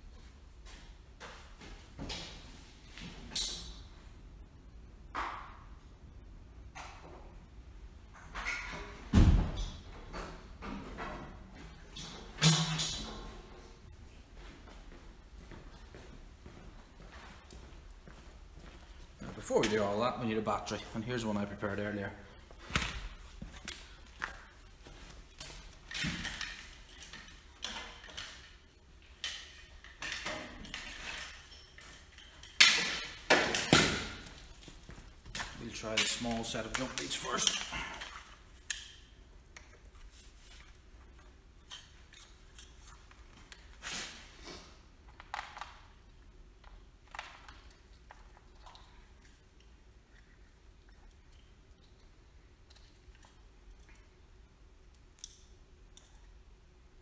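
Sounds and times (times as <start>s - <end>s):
metal objects clinking: 29.2s - 33.9s.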